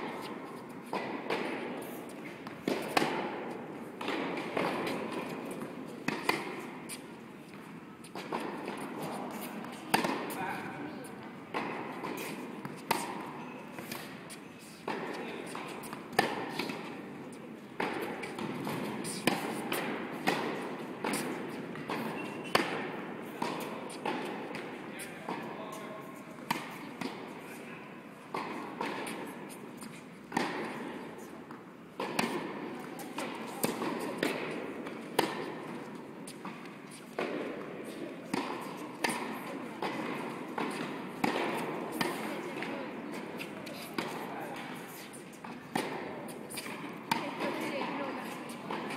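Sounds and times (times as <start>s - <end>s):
tennis balls bouncing on court: 0.0s - 27.4s, 28.2s - 48.9s
tennis balls struck by rackets: 0.0s - 27.4s, 28.2s - 48.9s.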